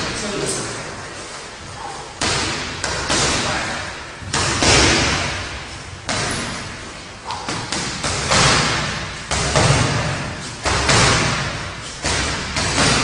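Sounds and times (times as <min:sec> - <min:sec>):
punches thudding on punching bag: 0:02.2 - 0:03.6, 0:04.2 - 0:13.0.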